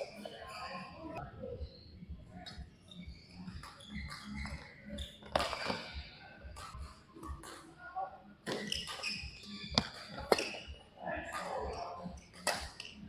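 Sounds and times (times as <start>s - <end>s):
shoes squeaking on court floor: 2.4s - 7.6s, 8.4s - 13.0s
racket striking shuttlecock: 5.3s - 5.8s, 8.5s - 10.7s, 12.4s - 13.0s.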